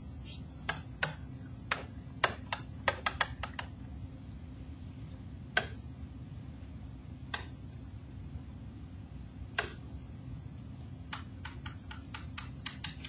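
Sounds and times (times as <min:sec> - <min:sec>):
steady low hum: 0:00.0 - 0:13.0
stylus tapping on screen: 0:00.6 - 0:03.8, 0:05.5 - 0:05.8, 0:07.3 - 0:07.6, 0:09.5 - 0:09.9, 0:11.0 - 0:13.0.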